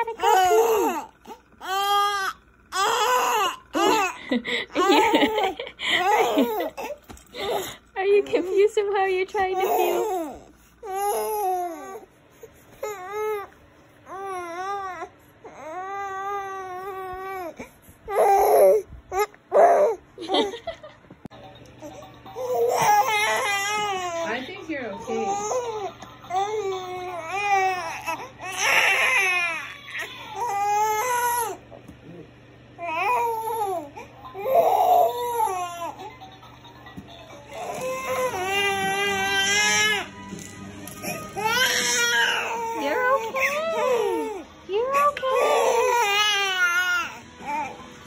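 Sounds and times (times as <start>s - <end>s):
baby crying: 0.0s - 4.2s, 9.5s - 12.1s, 14.1s - 20.0s, 22.4s - 31.6s, 32.8s - 36.1s, 37.5s - 40.1s, 41.0s - 47.8s.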